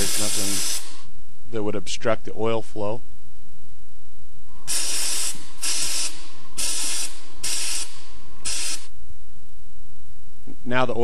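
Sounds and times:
aerosol spray hissing: 0:00.0 - 0:01.1, 0:04.7 - 0:08.9.

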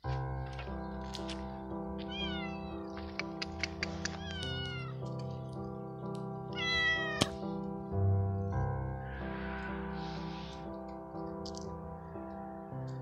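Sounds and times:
music of sustained notes: 0:00.0 - 0:13.0
cat meowing: 0:02.0 - 0:02.9, 0:04.0 - 0:05.0, 0:06.5 - 0:07.4.

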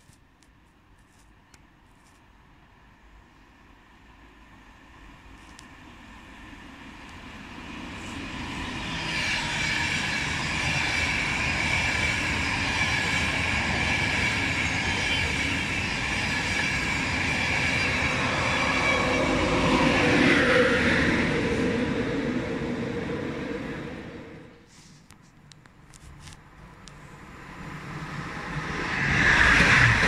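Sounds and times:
train wheels rushing on rails: 0:04.6 - 0:24.6, 0:26.9 - 0:30.0
high whine: 0:07.9 - 0:24.6.

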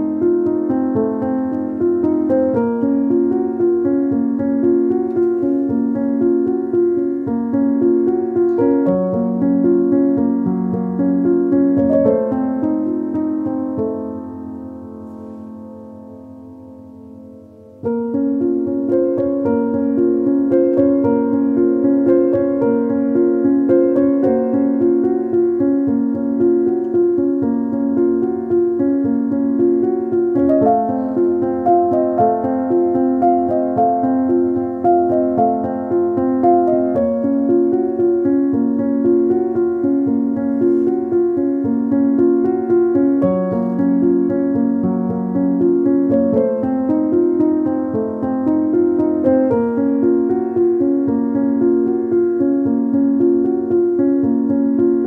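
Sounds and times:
gentle piano melody: 0:00.0 - 0:55.0
keyboard tune: 0:00.0 - 0:55.0.

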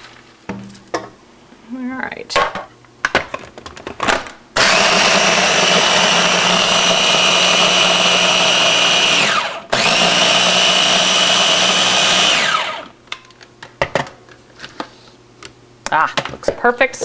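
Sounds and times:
food chopper motor grinding: 0:04.6 - 0:12.9.

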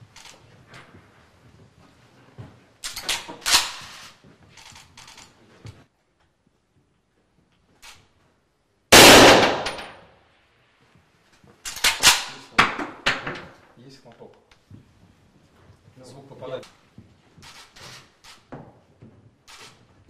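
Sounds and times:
metallic rifle bolt clicks: 0:02.8 - 0:03.8
rifle shot: 0:08.9 - 0:10.1.

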